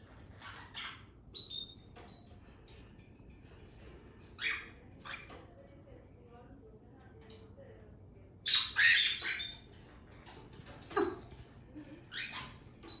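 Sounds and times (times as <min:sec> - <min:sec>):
cockatiels squawking: 0:08.5 - 0:09.7.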